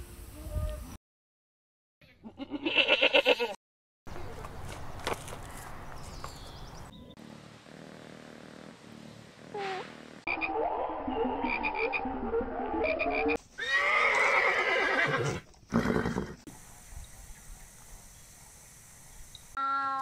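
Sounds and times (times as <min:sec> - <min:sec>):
horse whinnying: 0:13.6 - 0:16.4.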